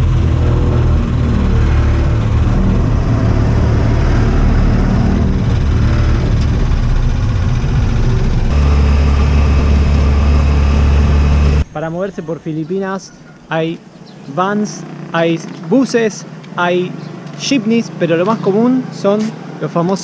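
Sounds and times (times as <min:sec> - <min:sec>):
motorcycle engine running: 0:00.0 - 0:11.7.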